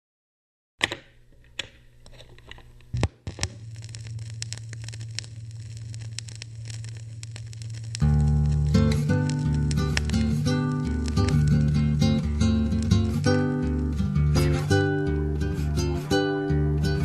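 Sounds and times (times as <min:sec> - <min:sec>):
crackling with sharp clicks: 0:00.8 - 0:14.9
low steady hum: 0:01.1 - 0:17.0
plucked guitar and bass music: 0:07.6 - 0:17.0.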